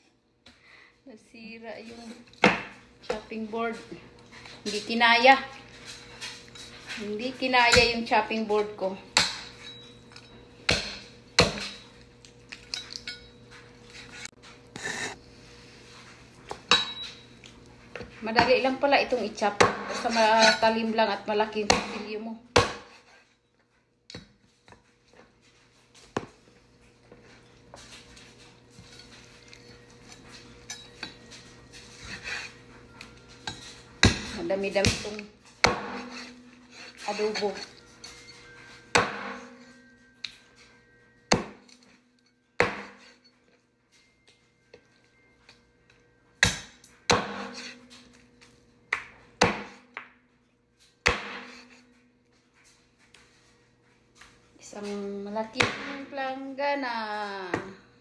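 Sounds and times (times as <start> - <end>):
cleaver chopping on wooden board: 34.0 - 36.3, 39.0 - 39.4, 41.3 - 41.6, 42.6 - 43.0, 49.0 - 49.8, 51.1 - 51.6.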